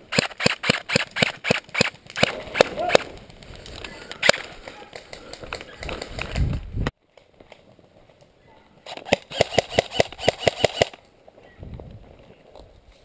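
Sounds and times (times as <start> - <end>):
airsoft rifle rapid shots: 0.1 - 3.0, 8.8 - 11.0.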